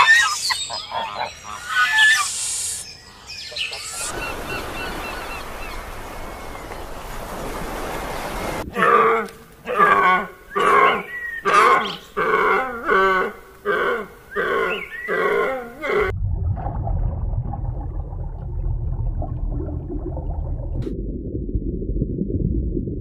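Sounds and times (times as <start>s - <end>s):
deer calling: 8.8s - 16.1s
low rumble: 16.1s - 23.0s.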